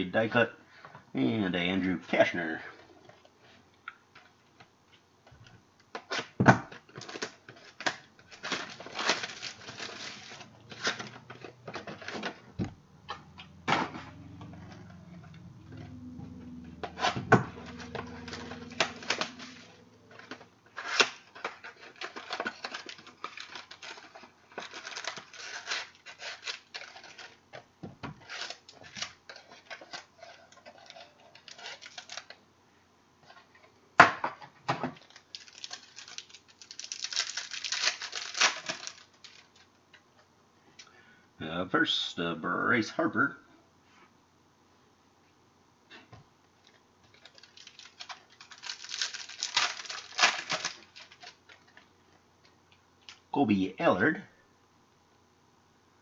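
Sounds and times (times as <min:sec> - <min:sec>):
foil wrappers crinkling and tearing: 0:06.9 - 0:12.5, 0:16.8 - 0:27.6, 0:28.2 - 0:32.4, 0:34.9 - 0:39.8, 0:46.6 - 0:51.9
low drone: 0:13.1 - 0:20.6.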